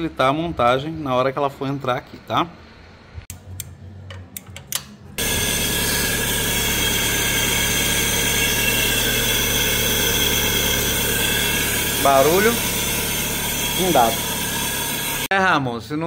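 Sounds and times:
car engine idling: 5.2s - 15.3s.

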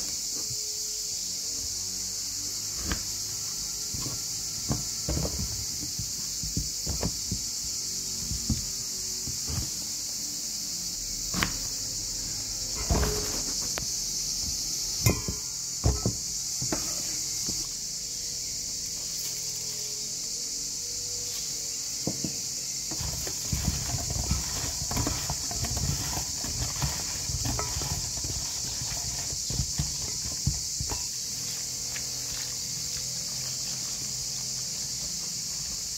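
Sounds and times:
steady high hiss: 0.0s - 26.8s
slices knocking in metal bowl: 15.1s - 16.2s.

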